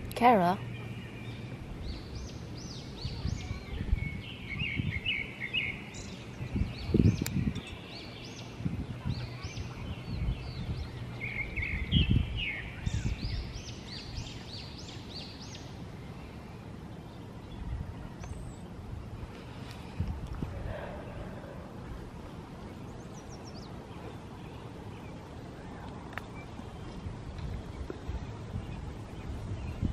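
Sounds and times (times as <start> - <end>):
songbirds chirping: 0.0 - 29.9.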